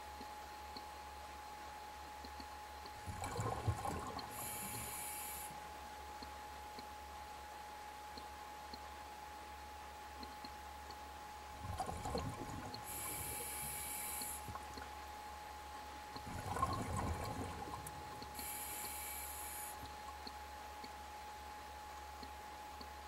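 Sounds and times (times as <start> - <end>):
diver exhaling bubbles: 3.0 - 4.8, 11.7 - 14.0, 16.2 - 18.7
regulator hiss: 4.3 - 5.6, 12.8 - 14.6, 18.2 - 20.0.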